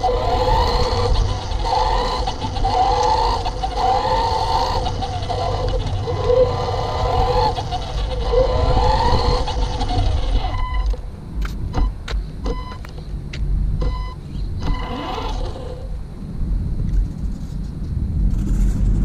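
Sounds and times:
electric motor whining: 0.0 - 11.0, 14.4 - 15.9
low rumble: 16.0 - 19.0.

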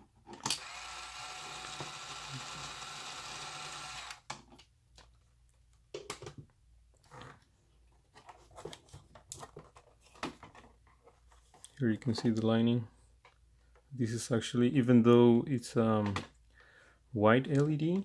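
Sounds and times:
slot car motor whirring: 0.6 - 4.2.

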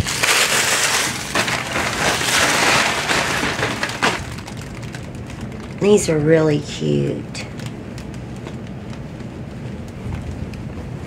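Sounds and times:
sharp plastic crack: 0.0 - 5.8
plastic packaging crinkling: 0.0 - 6.1.

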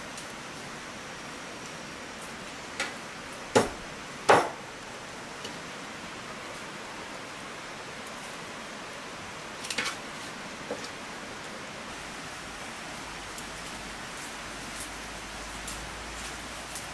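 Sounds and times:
light rain hiss: 0.0 - 16.9
sharp knocks: 3.5 - 4.6.

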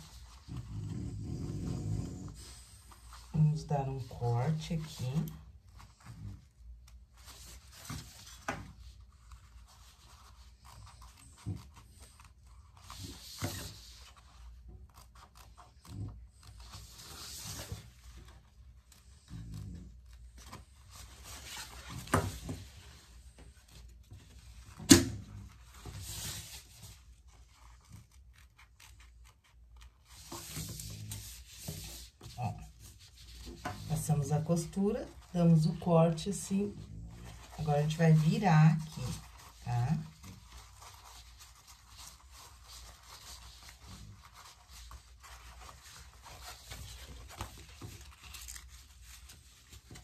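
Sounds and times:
raincoat fabric rustling: 29.8 - 50.0.

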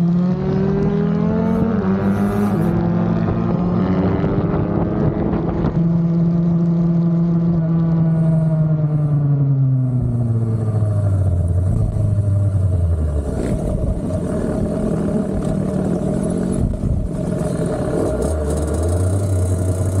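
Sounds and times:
dirt bike engine: 10.0 - 20.0.

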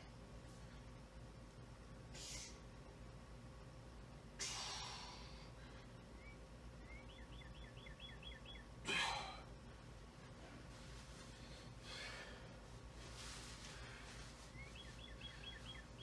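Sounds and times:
man exhaling heavily: 2.1 - 2.6, 4.4 - 5.5
high chirps: 6.2 - 8.8, 14.5 - 16.0.

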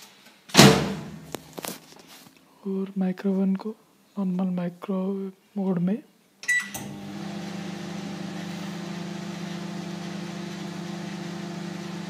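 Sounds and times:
microwave oven beep: 6.5 - 8.2
microwave oven humming: 6.8 - 12.0.

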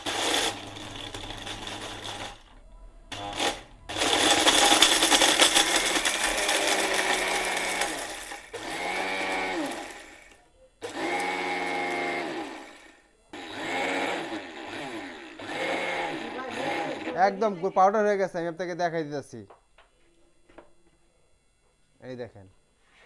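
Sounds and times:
mixer grinder crushing brick: 0.0 - 2.5, 3.1 - 17.4.

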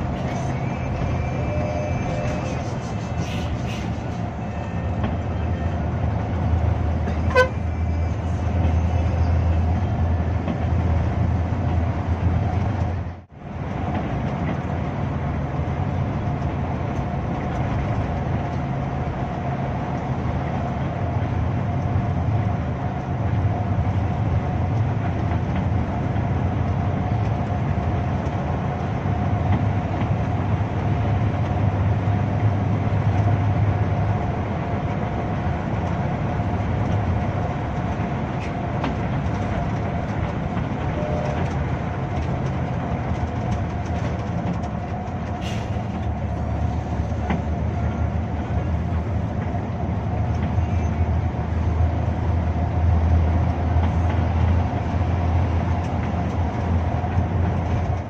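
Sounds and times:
bus engine drone: 0.0 - 58.0
road noise: 0.0 - 58.0
short tone: 40.9 - 41.6.

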